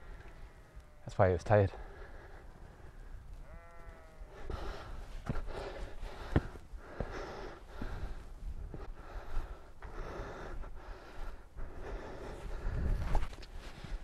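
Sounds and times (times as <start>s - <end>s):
sheep bleating: 0.2s - 1.4s, 3.4s - 4.5s
heavy breathing: 1.7s - 3.1s, 4.3s - 14.0s
footsteps on rocky ground: 4.4s - 14.0s.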